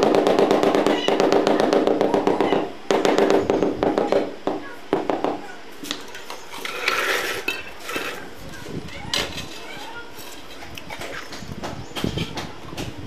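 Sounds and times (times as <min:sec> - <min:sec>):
short scrape on tile: 0:06.5 - 0:08.3.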